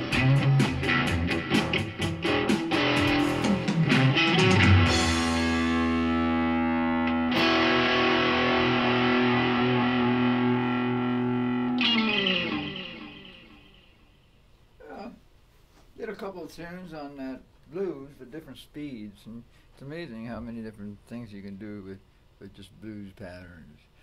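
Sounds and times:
electric guitar playing: 0.0s - 14.2s.

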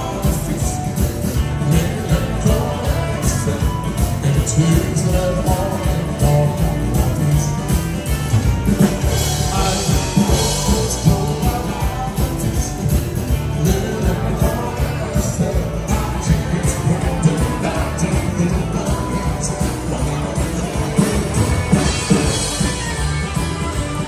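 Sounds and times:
live band through pa speakers: 0.0s - 24.0s
person singing: 0.0s - 24.0s.

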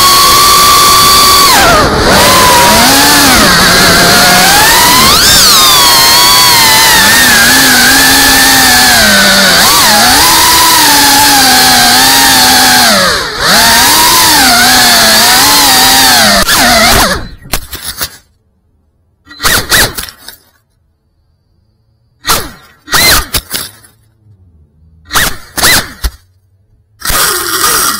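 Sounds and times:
quadcopter motors whining: 0.0s - 17.5s, 22.8s - 23.5s, 27.0s - 27.9s.

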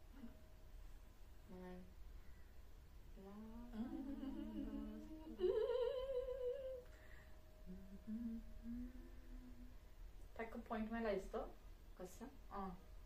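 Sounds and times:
woman humming: 0.0s - 0.4s, 1.4s - 2.0s, 3.1s - 6.9s, 7.6s - 9.8s.

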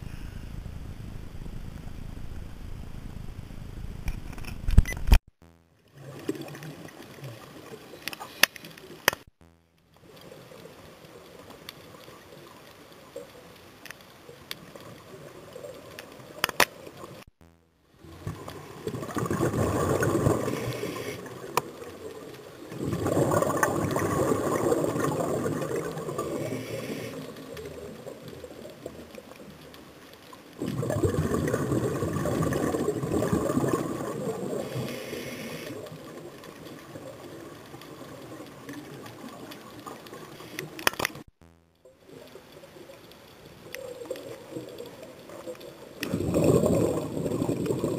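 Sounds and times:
faint underwater hiss: 0.0s - 4.0s, 17.9s - 41.3s
small clicks: 6.5s - 15.0s, 15.6s - 17.7s, 34.8s - 46.2s
bubbles rushing underwater: 18.0s - 20.7s, 21.3s - 26.5s, 30.6s - 34.9s, 46.0s - 47.9s.

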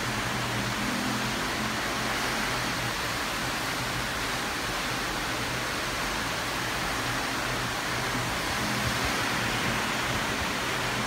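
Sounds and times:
heavy rain downpour: 0.0s - 11.0s.

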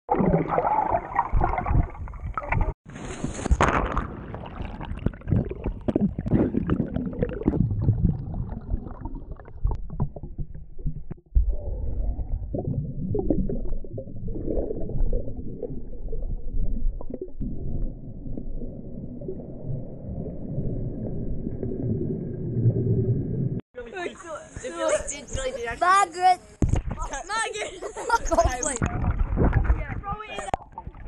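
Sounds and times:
muffled underwater rushing and bubbling: 0.1s - 23.6s.

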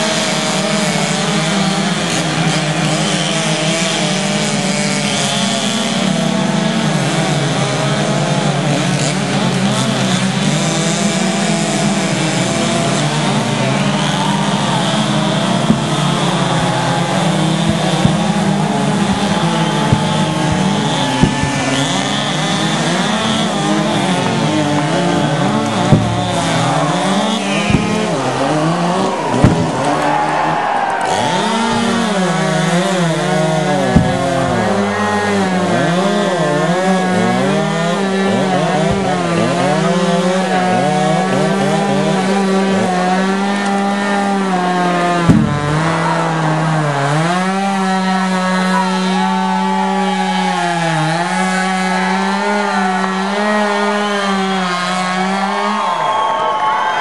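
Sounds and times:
chainsaws cutting through tree: 0.0s - 57.0s
sharp knocks: 14.6s - 30.1s, 31.1s - 41.1s, 45.0s - 46.2s.

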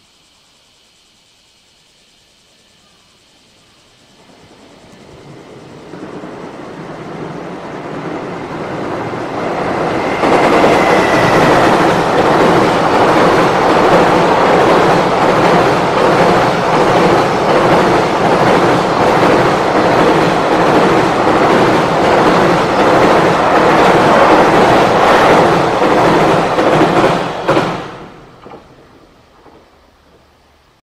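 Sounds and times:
train wheels rumbling on bridge: 4.1s - 30.8s.

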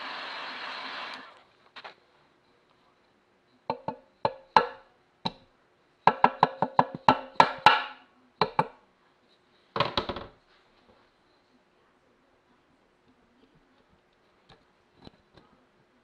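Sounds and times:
plastic mallet knocking on metal: 3.7s - 5.4s, 6.1s - 8.8s.

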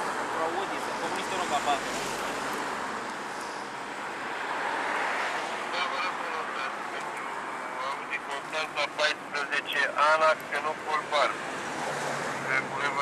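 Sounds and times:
radio static hiss: 5.7s - 11.3s
garbled radio transmission: 5.7s - 11.4s.

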